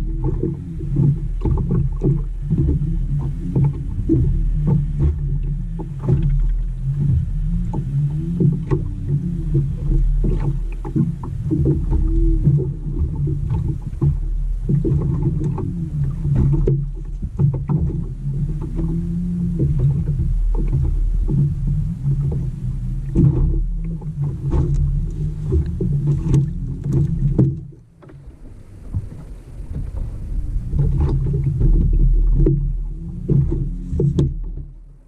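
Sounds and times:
boat motor humming: 0.0s - 35.0s
knocks and clicks: 23.1s - 34.8s.

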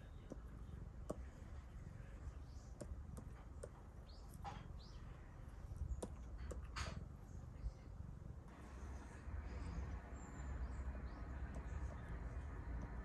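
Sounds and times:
low hum: 0.0s - 13.0s
stylus tapping on screen: 0.1s - 1.3s, 2.7s - 4.6s, 6.0s - 6.7s.

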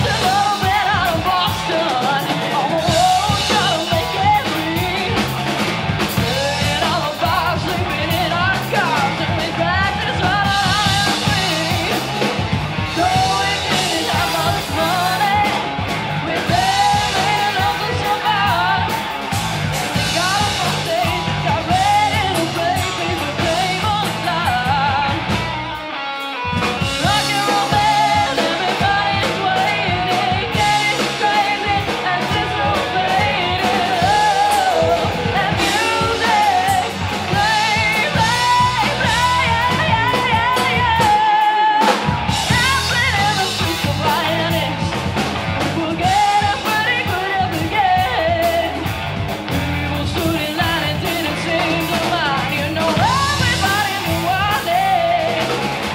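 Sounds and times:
woman singing: 0.0s - 19.2s, 19.8s - 25.5s, 26.7s - 55.9s
live rock band playing: 0.0s - 55.9s.

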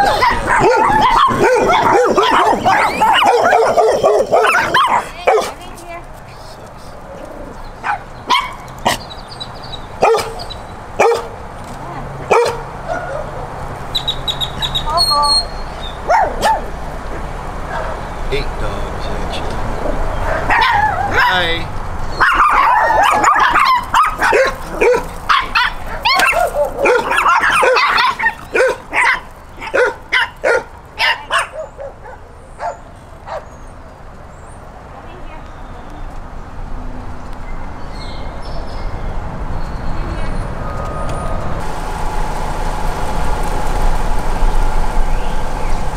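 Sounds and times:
dog barking: 0.0s - 5.6s, 7.8s - 9.0s, 10.0s - 11.4s, 12.3s - 13.5s, 16.0s - 16.8s, 17.7s - 18.1s, 19.9s - 21.5s, 22.2s - 33.6s.

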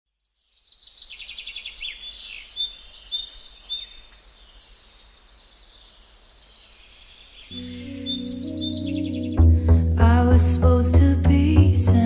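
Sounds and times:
birds chirping and singing: 0.4s - 10.0s.

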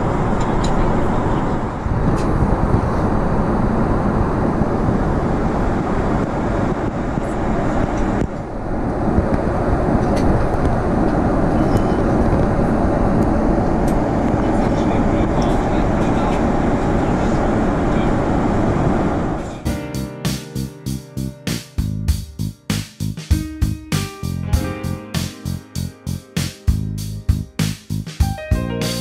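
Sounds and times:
airliner cabin engine rush: 0.0s - 22.1s.

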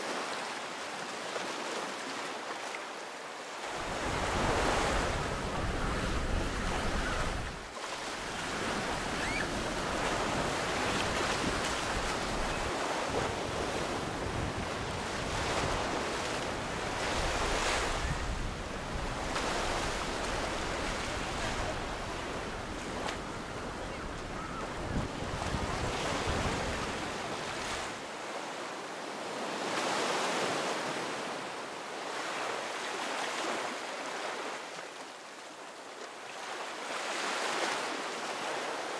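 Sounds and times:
surf breaking on sandy beach: 3.7s - 28.0s
wind buffeting microphone: 3.8s - 7.6s, 8.2s - 27.0s.

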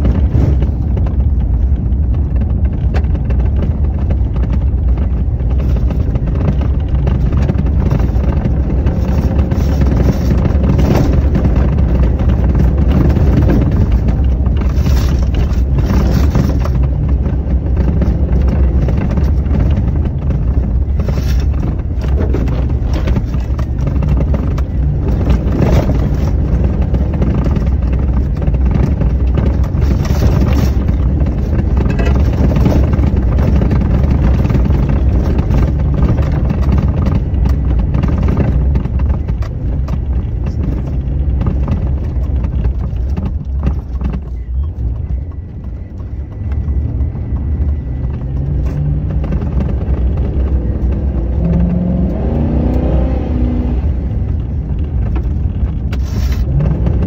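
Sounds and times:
vehicle rumbling on gravel: 0.0s - 57.0s
sharp crunches or knocks: 17.9s - 44.3s.

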